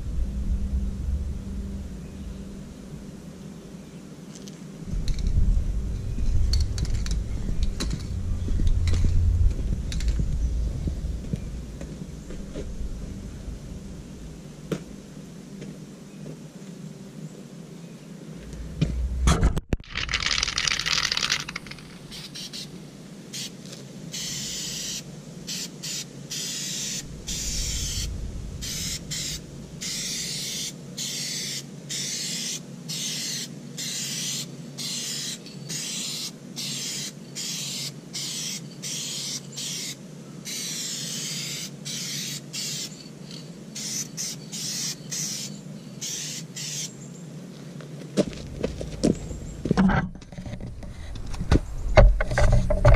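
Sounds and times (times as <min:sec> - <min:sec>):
aerosol spray can hissing: 0:20.0 - 0:22.7, 0:23.4 - 0:42.9, 0:43.8 - 0:46.9.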